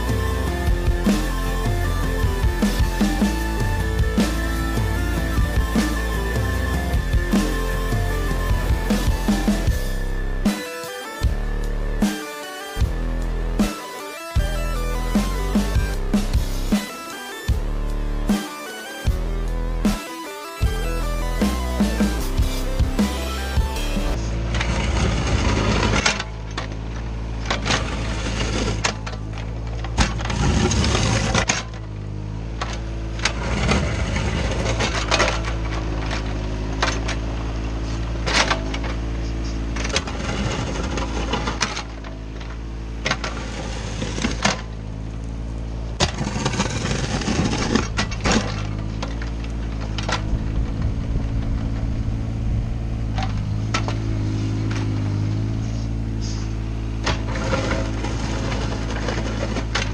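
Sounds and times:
excavator diesel engine running: 0:00.0 - 0:59.9
bucket scraping and dropping gravel: 0:57.0 - 0:59.9.

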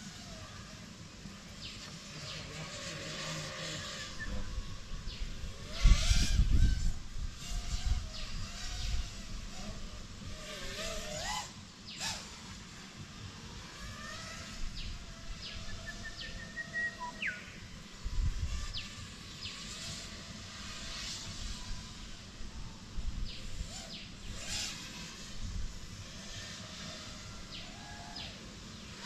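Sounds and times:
quadcopter whining: 0:00.0 - 0:29.0
bird chirps: 0:14.8 - 0:17.7.

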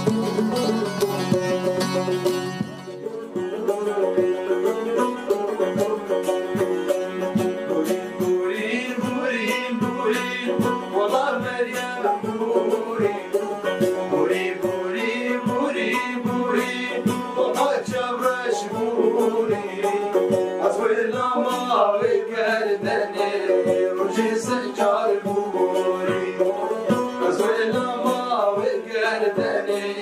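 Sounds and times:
plucked banjo and saz: 0:00.0 - 0:30.0
man singing: 0:02.7 - 0:30.0.

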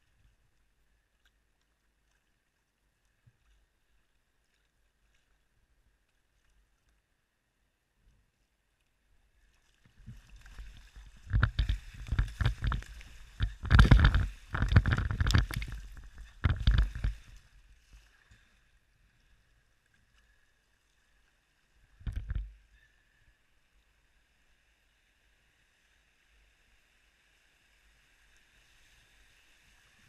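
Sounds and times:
river water splashing against kayak: 0:09.2 - 0:22.7.

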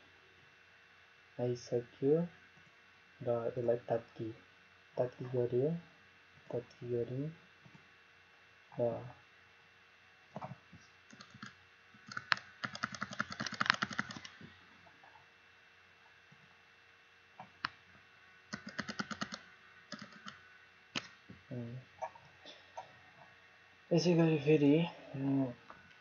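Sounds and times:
computer keyboard and mouse clicking: 0:10.4 - 0:14.4, 0:18.5 - 0:20.4.

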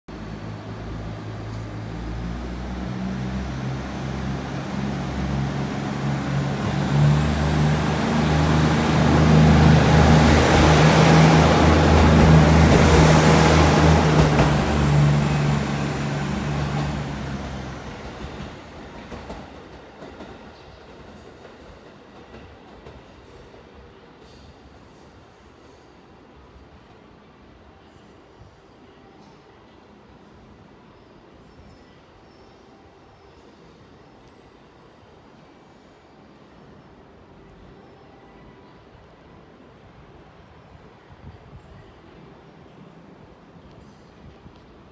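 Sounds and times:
diesel railcar engine drone: 0:00.1 - 0:19.1
train rumble: 0:00.1 - 0:23.2.

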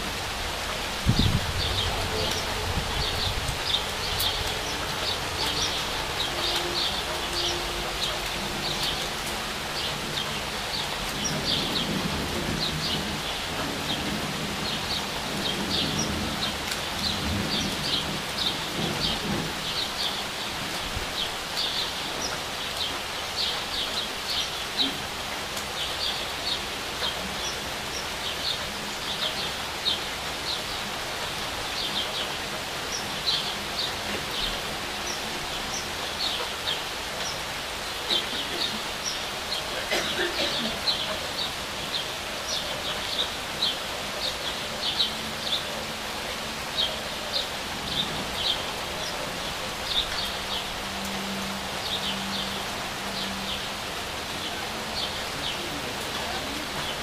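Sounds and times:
rain falling on leaves: 0:00.0 - 0:57.0
small birds chirping: 0:25.6 - 0:57.0.

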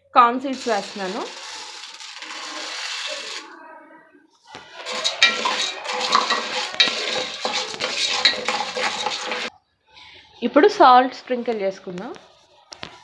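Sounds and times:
kernels stirred in metal pot: 0:00.5 - 0:03.5, 0:04.5 - 0:09.5
popcorn kernels pouring: 0:00.5 - 0:03.5, 0:04.6 - 0:09.5.

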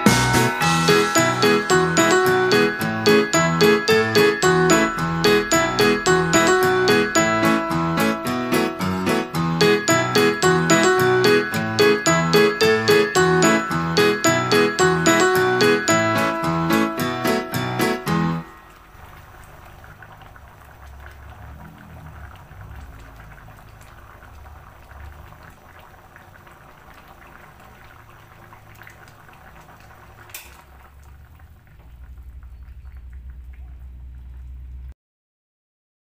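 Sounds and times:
curry bubbles popping: 0:18.6 - 0:34.9
low hum: 0:31.5 - 0:34.9.

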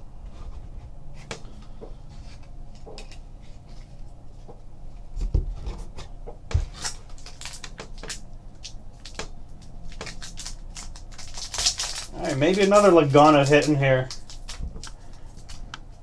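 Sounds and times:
cards rustling and clicking: 0:01.2 - 0:03.9, 0:06.6 - 0:16.0
foil wrapper crinkling: 0:06.7 - 0:16.0.

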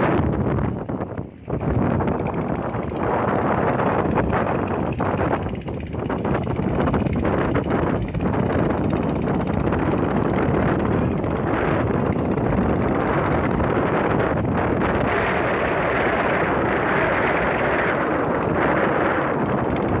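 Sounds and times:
motorboat engine running: 0:00.0 - 0:20.0
wind buffeting microphone: 0:00.0 - 0:20.0.

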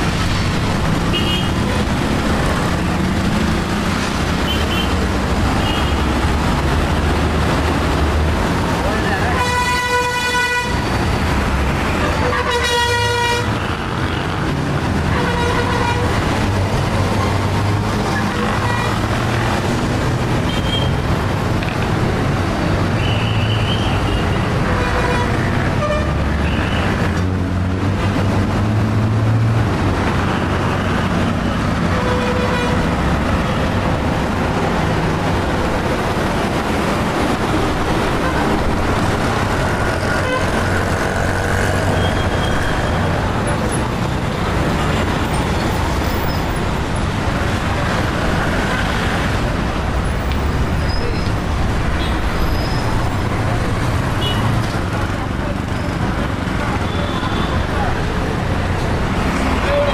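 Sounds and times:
vehicle engines running: 0:00.0 - 0:09.9, 0:13.2 - 0:59.9
car horns honking: 0:09.4 - 0:10.9.

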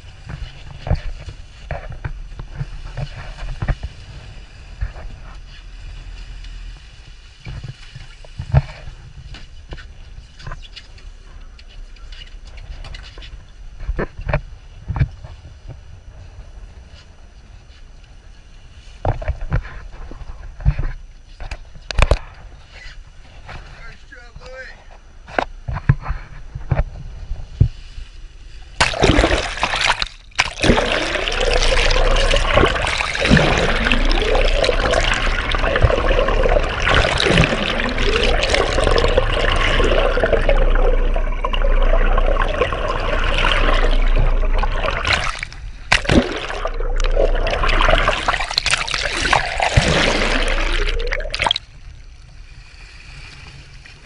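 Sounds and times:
water splashing against boat: 0:28.6 - 0:52.1.

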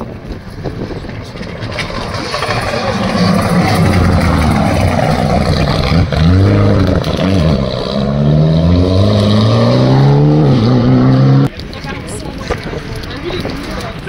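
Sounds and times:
rally car engine revving past: 0:01.8 - 0:11.5.

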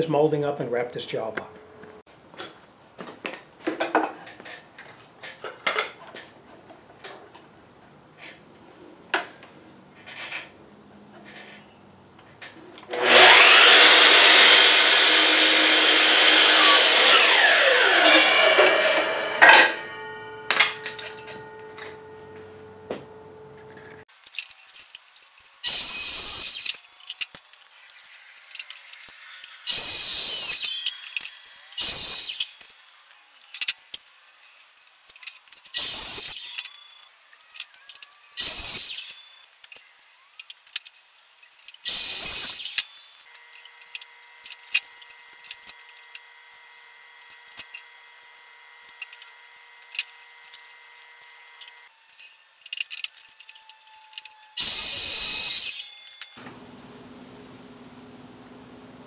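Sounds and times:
miter saw cutting: 0:12.9 - 0:21.6, 0:25.6 - 0:27.0, 0:27.8 - 0:32.7, 0:41.8 - 0:56.4.

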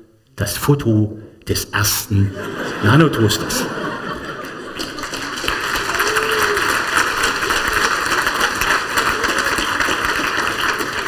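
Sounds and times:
crowd noise: 0:02.3 - 0:11.0.

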